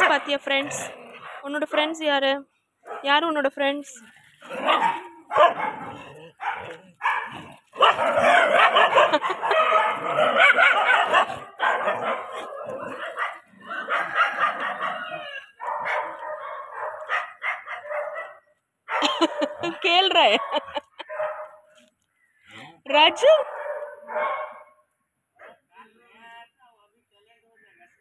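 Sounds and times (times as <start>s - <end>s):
dogs barking: 4.5s - 21.7s, 23.0s - 24.8s.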